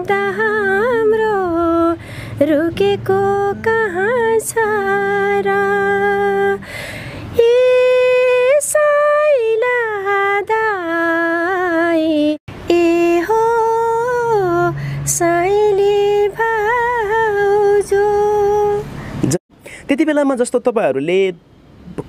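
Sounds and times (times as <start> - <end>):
woman singing unaccompanied: 0.0 - 6.7, 7.3 - 19.0
woman breathing: 2.0 - 2.4, 6.6 - 7.4, 14.7 - 15.1, 18.8 - 19.8.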